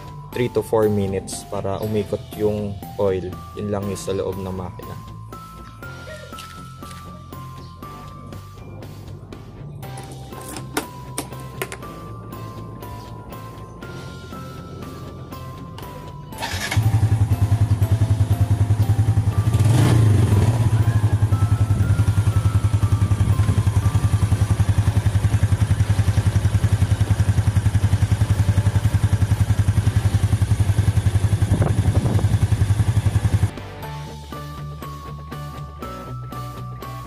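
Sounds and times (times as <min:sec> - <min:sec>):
motorcycle engine idling: 0:10.7 - 0:33.5.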